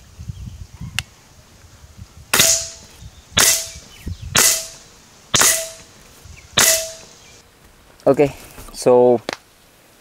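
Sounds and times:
air rifle shots: 2.3 - 5.9, 6.6 - 7.1.

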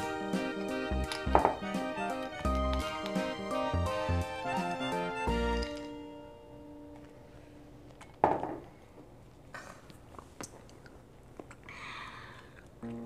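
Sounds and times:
background music: 0.0 - 7.8.

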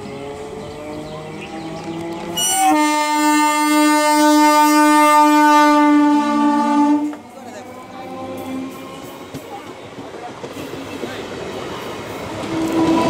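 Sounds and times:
train horn: 2.3 - 7.3, 12.4 - 13.0.

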